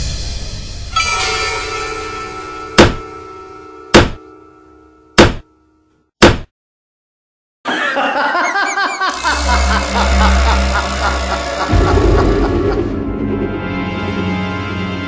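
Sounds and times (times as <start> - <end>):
background music: 7.7 - 15.0.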